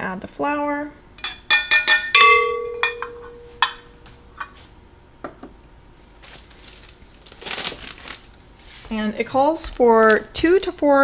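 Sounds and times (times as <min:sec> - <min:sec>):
metal cup knocking glass bowl: 0:01.2 - 0:04.0
glass ringing: 0:01.2 - 0:04.5.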